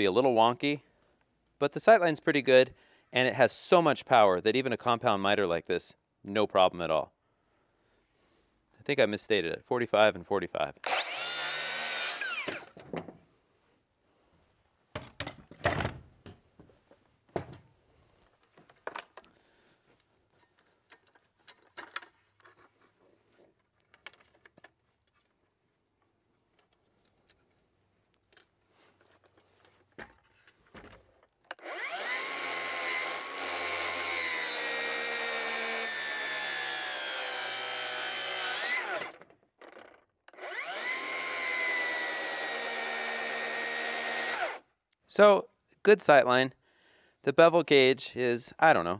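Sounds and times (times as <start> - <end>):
circular saw cutting board: 10.8 - 12.8, 31.5 - 44.6.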